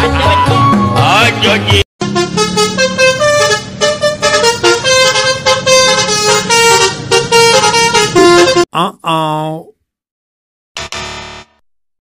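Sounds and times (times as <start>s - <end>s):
multi-tone vehicle horn tune: 2.0s - 8.7s.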